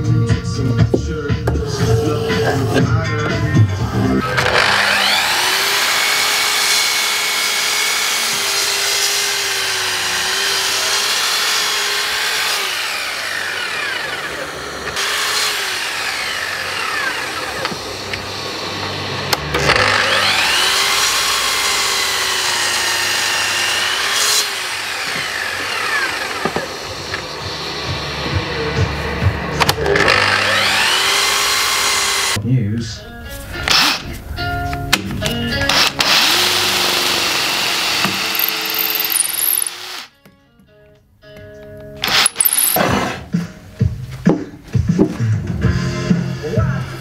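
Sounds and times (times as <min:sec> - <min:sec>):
mitre saw cutting wood: 0:04.2 - 0:28.3, 0:29.9 - 0:32.4, 0:35.8 - 0:40.1.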